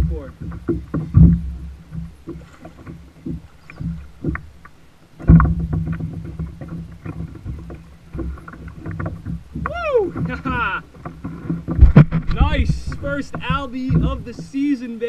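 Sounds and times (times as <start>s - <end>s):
heavy thump: 0.0s - 2.4s, 5.2s - 10.7s, 11.5s - 14.6s
knocks and rattles on plastic kayak: 0.0s - 15.0s
steady low rumble: 11.8s - 14.6s.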